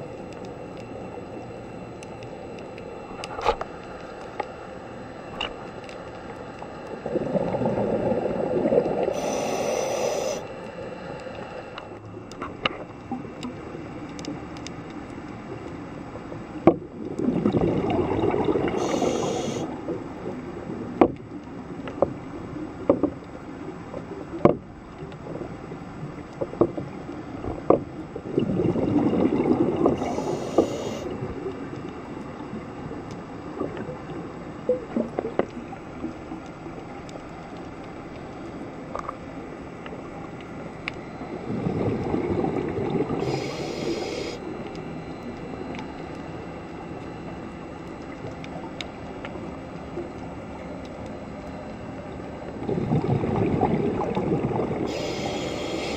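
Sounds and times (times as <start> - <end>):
steady underwater hiss: 0.0 - 55.9
exhaled bubbles underwater: 6.6 - 10.4, 16.2 - 37.5, 38.8 - 55.9
regulator hiss: 9.0 - 11.9, 18.7 - 19.8, 30.0 - 31.2, 43.1 - 44.5, 54.8 - 55.9.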